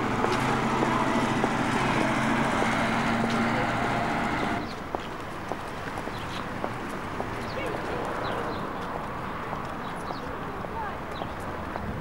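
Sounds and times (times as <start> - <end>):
truck engine driving past: 0.0 - 4.8
traffic noise: 0.0 - 12.0.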